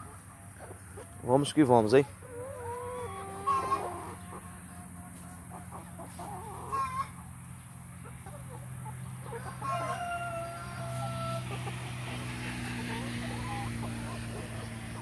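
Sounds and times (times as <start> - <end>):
chickens clucking and calling: 0.0 - 15.0
chickens scratching: 0.0 - 15.0.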